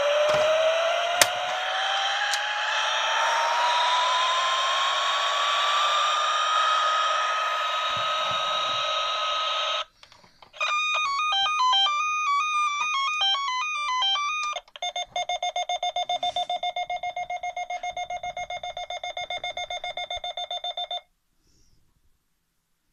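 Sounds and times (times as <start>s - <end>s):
fast pulsing beep: 10.6s - 21.0s.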